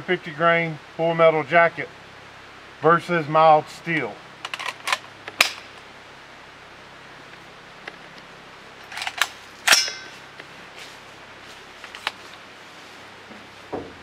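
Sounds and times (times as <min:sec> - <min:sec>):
metallic clack with ring: 0:09.7 - 0:10.2.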